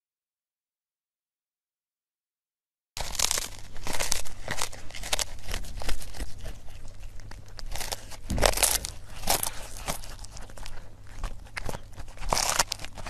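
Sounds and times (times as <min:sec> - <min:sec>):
cat crunching and chewing fish: 0:03.0 - 0:13.0.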